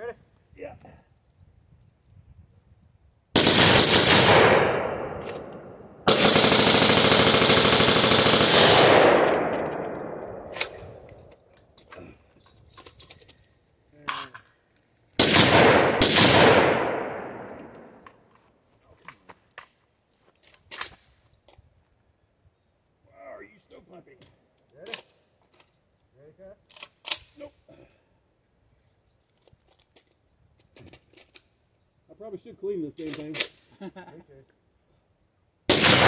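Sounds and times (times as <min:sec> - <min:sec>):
rapid rifle fire with echo: 0:03.4 - 0:10.5, 0:15.2 - 0:17.6, 0:35.7 - 0:36.0.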